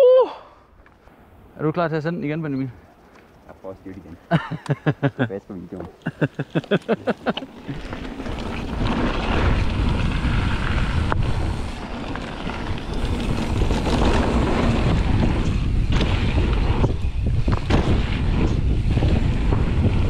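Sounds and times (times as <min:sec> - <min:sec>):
bike tyres rolling on gravel: 0:00.8 - 0:20.0
wind on microphone: 0:07.7 - 0:20.0.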